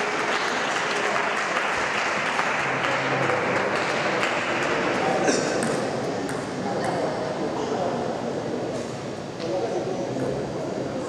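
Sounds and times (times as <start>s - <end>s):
spectators clapping: 0.0s - 5.1s.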